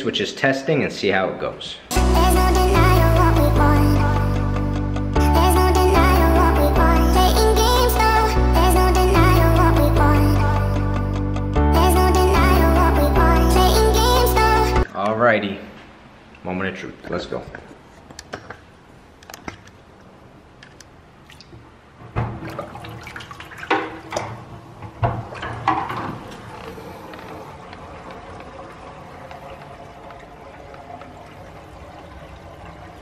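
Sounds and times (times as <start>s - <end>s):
water running into a sink: 22.2s - 33.0s.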